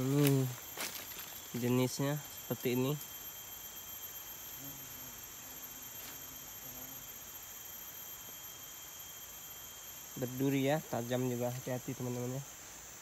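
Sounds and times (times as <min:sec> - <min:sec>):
faint low humming: 0:00.0 - 0:13.0
forest insects droning: 0:00.0 - 0:13.0.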